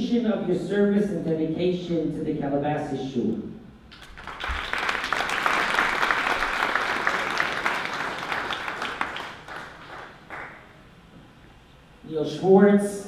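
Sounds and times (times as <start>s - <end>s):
audience applauding: 4.0s - 10.8s.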